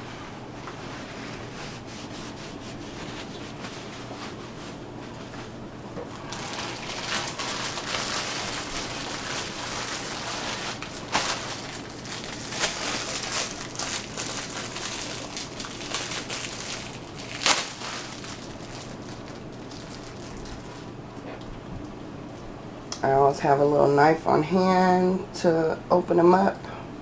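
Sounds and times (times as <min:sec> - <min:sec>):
plastic bag crinkling: 0:06.0 - 0:21.0.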